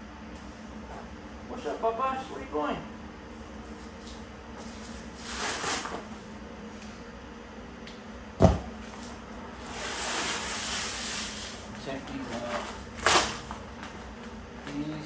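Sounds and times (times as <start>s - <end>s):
cardboard and plastic rustling: 11.8s - 15.0s.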